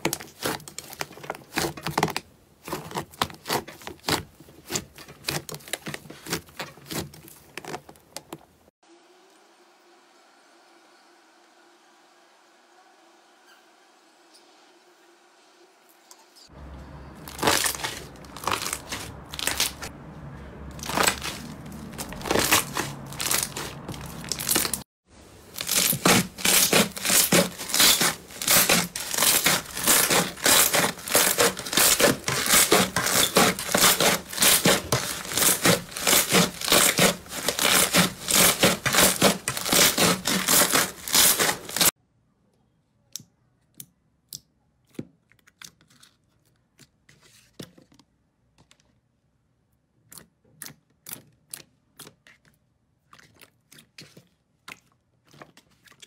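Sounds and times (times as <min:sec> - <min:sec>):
slime crackling and popping: 0:20.8 - 0:24.8, 0:25.5 - 0:41.9.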